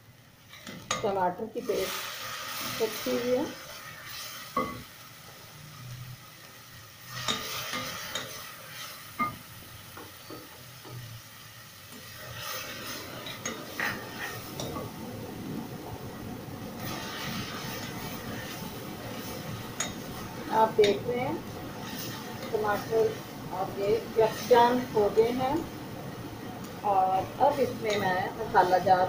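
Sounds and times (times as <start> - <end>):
food sizzling: 0.0 - 29.0.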